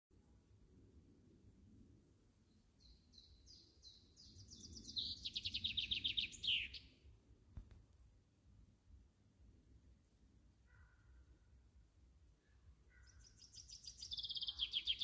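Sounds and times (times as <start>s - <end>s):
songbird singing a trill: 2.5s - 7.1s, 12.4s - 15.0s.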